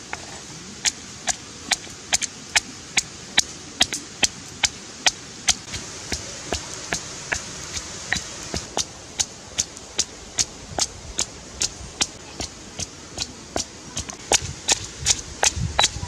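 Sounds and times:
stone pestle pounding in mortar: 11.2 - 16.0.

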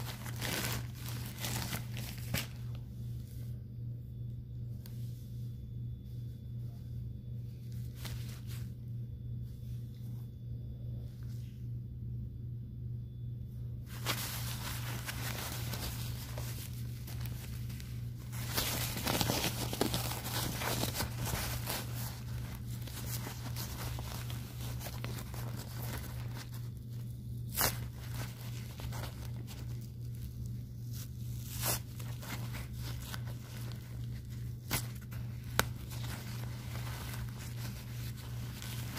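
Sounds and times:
plastic crinkling and rustling: 0.0 - 2.9, 13.9 - 38.9
low hum: 0.0 - 38.9.

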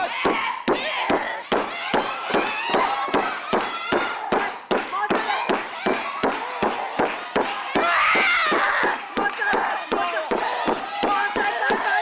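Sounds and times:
voices shouting: 0.0 - 12.0
crowd clapping in unison: 5.5 - 7.6, 8.8 - 11.9.

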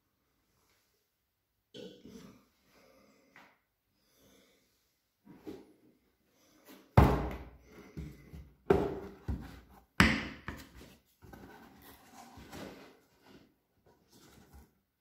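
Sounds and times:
cardboard scraping and rustling: 10.7 - 14.8.

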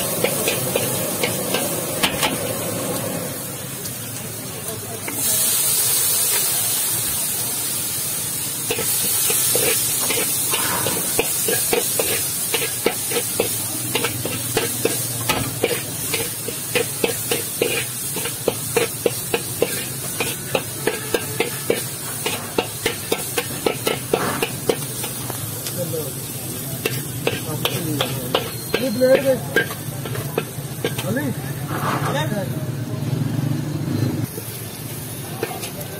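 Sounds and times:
metal spatula scraping a wok: 0.0 - 2.6, 8.6 - 25.2, 26.8 - 32.3
steam hissing off hot wok: 0.0 - 32.9, 34.2 - 35.9
frying sizzle: 0.0 - 35.9.

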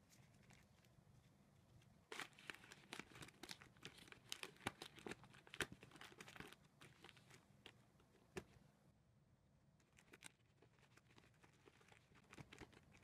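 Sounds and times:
plastic film and tissues crinkling: 2.1 - 7.8.

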